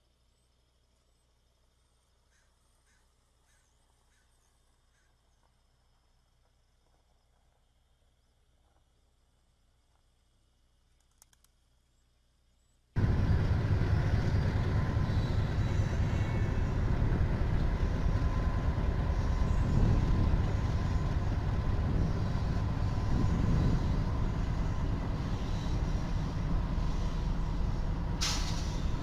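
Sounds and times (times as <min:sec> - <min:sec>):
train rumbling past: 0:13.0 - 0:29.0
short sharp hiss: 0:28.2 - 0:29.0.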